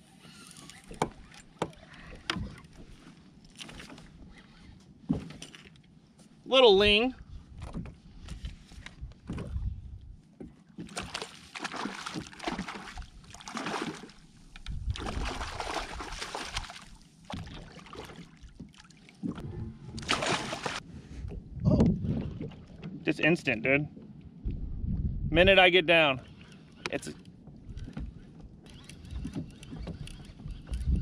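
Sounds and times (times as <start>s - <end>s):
water splashing against kayak: 7.5s - 23.1s
bump against hull: 19.2s - 23.0s
fish thrashing at surface: 19.4s - 20.8s.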